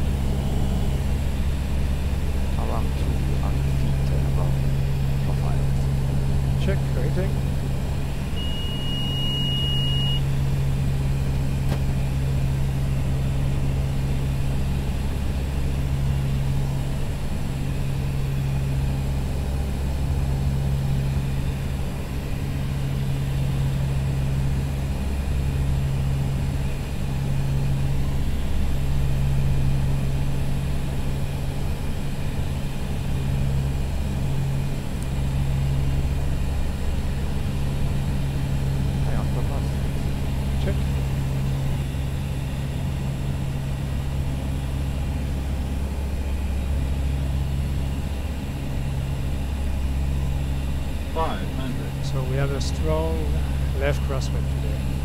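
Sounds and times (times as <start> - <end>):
turboprop engines droning: 0.0 - 55.0
high steady tone: 8.4 - 10.2.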